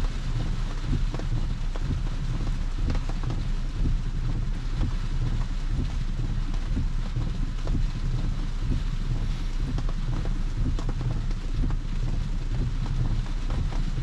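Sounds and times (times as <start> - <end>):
heavy rain on car roof: 0.0 - 14.0
raindrops ticking: 0.0 - 14.0.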